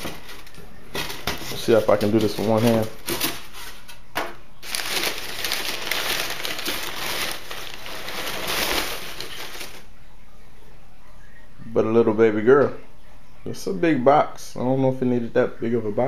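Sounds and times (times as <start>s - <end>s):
newspaper rustling and crinkling: 0.0s - 9.9s.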